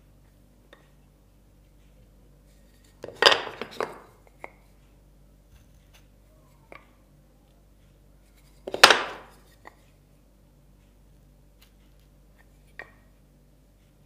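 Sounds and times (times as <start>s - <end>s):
wooden blocks knocking on board: 3.0s - 4.1s, 8.7s - 9.3s.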